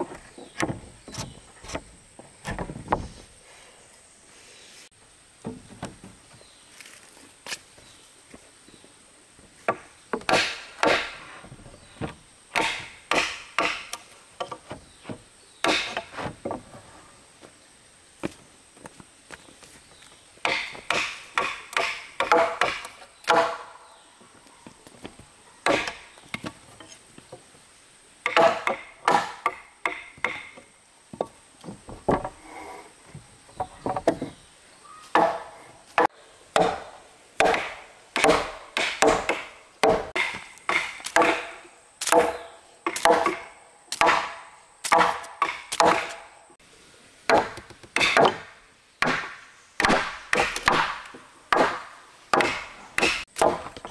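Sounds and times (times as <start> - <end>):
hand tool striking wood: 9.7 - 11.2, 12.6 - 16.3, 20.4 - 23.7, 25.7 - 26.6, 28.2 - 31.4, 35.1 - 46.2, 47.3 - 53.9.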